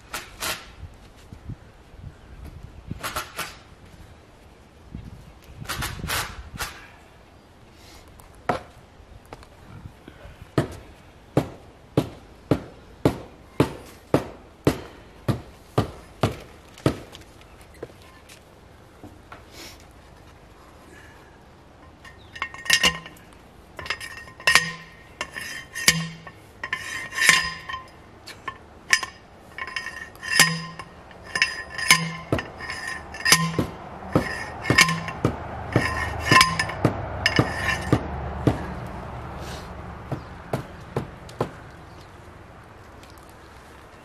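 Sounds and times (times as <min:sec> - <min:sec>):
post driver clanking on metal: 0:21.8 - 0:38.7.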